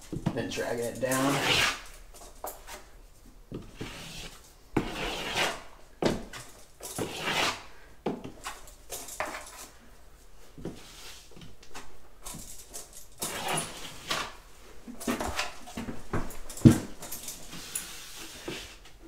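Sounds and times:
drywall knife scraping: 0:01.1 - 0:02.0, 0:03.7 - 0:05.7, 0:07.0 - 0:07.7, 0:13.2 - 0:14.4.

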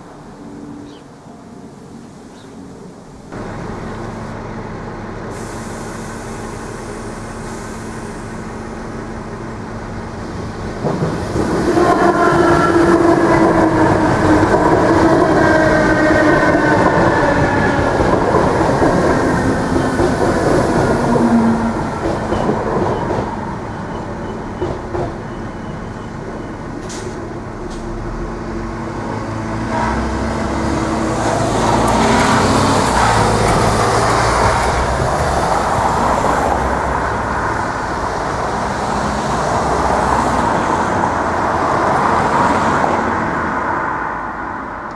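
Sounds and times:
road traffic: 0:00.0 - 0:44.9
car driving over crossing: 0:27.3 - 0:43.3.

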